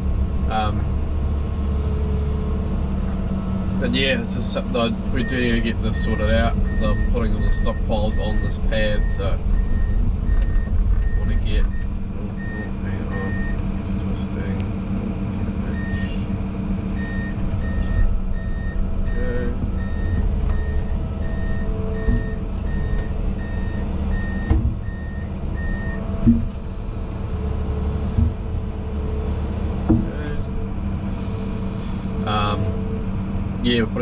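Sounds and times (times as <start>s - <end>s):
diesel engine running: 0.0s - 34.0s
excavator travel alarm beeping: 5.2s - 13.6s, 15.7s - 16.1s, 17.0s - 26.5s.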